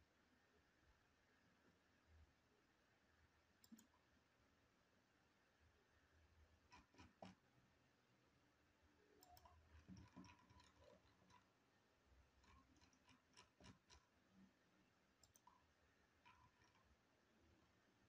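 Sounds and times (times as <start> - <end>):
faint mouse clicks: 3.6 - 4.1, 9.2 - 11.5, 15.2 - 16.9.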